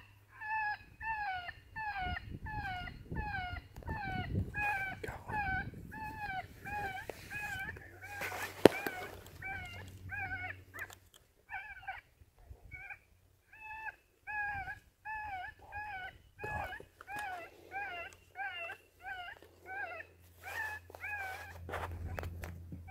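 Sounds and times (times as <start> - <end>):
rabbit distress call squalls: 0.3 - 10.6.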